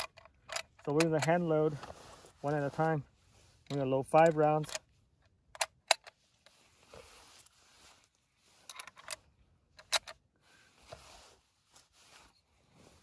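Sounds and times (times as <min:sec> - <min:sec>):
metallic clicks of rifle loading: 0:00.0 - 0:02.7, 0:03.6 - 0:06.6, 0:08.6 - 0:10.2
soft rustling: 0:01.4 - 0:04.1, 0:06.2 - 0:08.8, 0:10.5 - 0:13.0.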